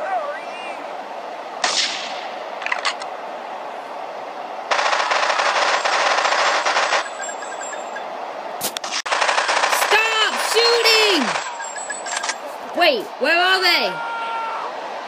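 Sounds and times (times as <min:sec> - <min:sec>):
machine-gun fire: 0:04.7 - 0:07.2, 0:08.8 - 0:11.6.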